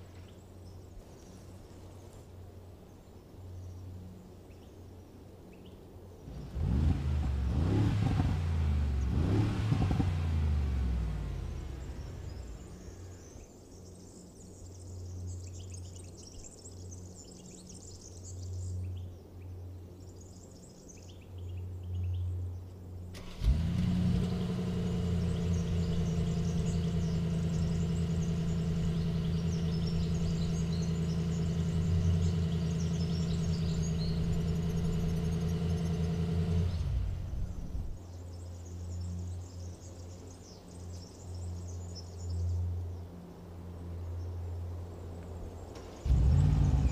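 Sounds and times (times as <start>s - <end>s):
birds chirping: 2.8s - 43.2s, 45.0s - 46.9s
car engine starting and idling: 6.3s - 13.4s, 23.1s - 38.0s, 45.7s - 46.9s.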